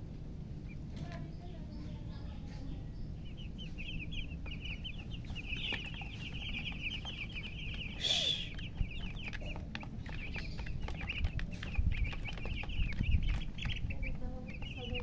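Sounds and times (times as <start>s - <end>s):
chicks peeping: 0.0s - 15.0s.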